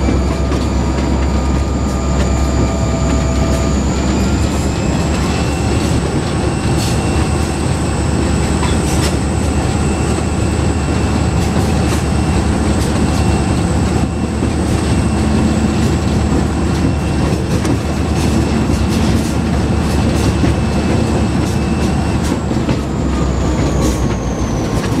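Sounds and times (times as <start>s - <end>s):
locomotive engine drone: 0.0s - 25.0s
wheels clicking over rail joints: 10.9s - 25.0s.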